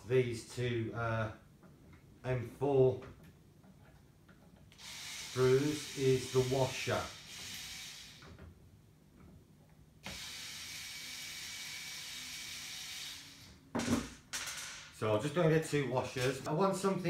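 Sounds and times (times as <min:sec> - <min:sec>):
electric screwdriver running: 0:04.8 - 0:08.3, 0:10.0 - 0:13.5.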